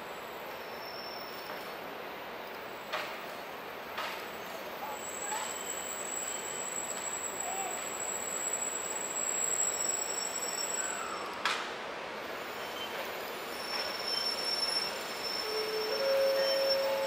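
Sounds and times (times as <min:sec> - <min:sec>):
train rolling with rushing noise: 0:00.0 - 0:17.0
high-pitched wheel and brake squeals: 0:00.4 - 0:01.8, 0:04.8 - 0:11.4, 0:12.4 - 0:17.0.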